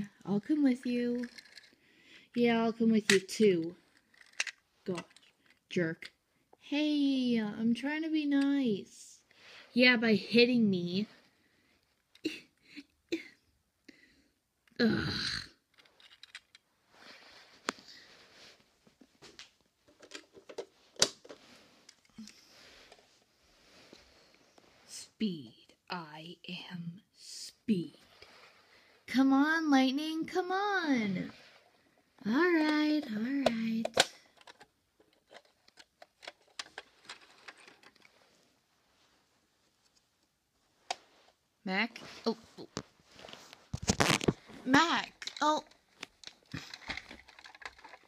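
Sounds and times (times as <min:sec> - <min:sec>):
toy cars handled on carpet: 0:00.0 - 0:06.6, 0:15.6 - 0:25.0, 0:28.0 - 0:29.3, 0:30.9 - 0:48.0
toy cars clicking and tapping: 0:01.1 - 0:01.8, 0:03.0 - 0:05.6, 0:15.7 - 0:16.6, 0:45.2 - 0:48.0.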